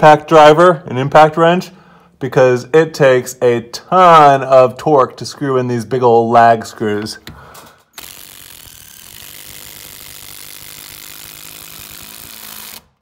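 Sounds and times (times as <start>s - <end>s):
impact driver rattling: 7.4s - 13.0s.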